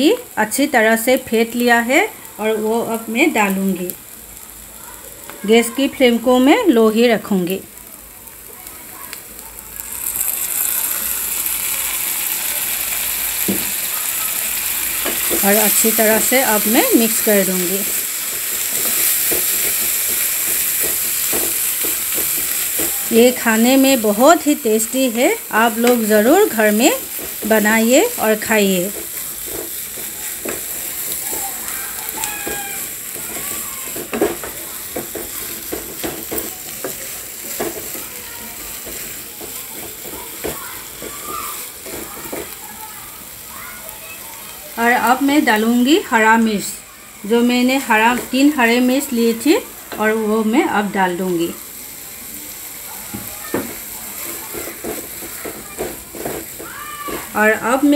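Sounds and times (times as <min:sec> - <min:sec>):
meat sizzling in a frying pan: 0:00.0 - 0:57.9
yogurt pouring into pan: 0:09.2 - 0:15.0
spatula scraping pan: 0:14.6 - 0:42.6, 0:53.5 - 0:57.9.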